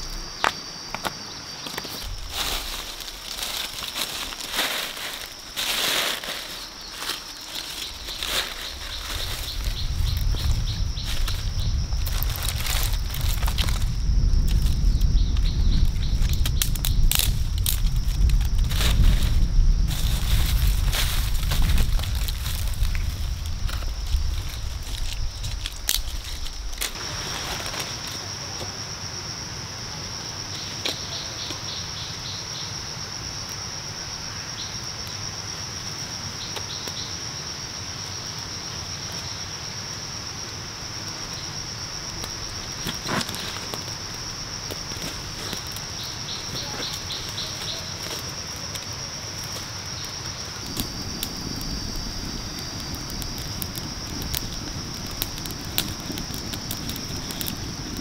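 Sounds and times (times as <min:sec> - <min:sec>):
insect chirring: 0:00.0 - 0:58.0
insect pulsed trill: 0:00.0 - 0:58.0
kindling fire crackling: 0:00.0 - 0:58.0
fire sharp snap: 0:08.4 - 0:28.2, 0:42.2 - 0:58.0.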